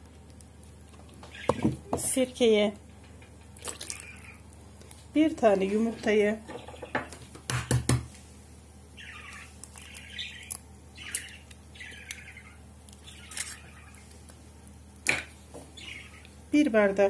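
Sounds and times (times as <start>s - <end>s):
bird chirping and squawking: 1.2s - 1.8s, 3.8s - 4.5s, 6.5s - 7.1s, 8.9s - 14.1s, 15.8s - 16.4s
egg tapped on plastic bowl: 6.5s - 8.1s.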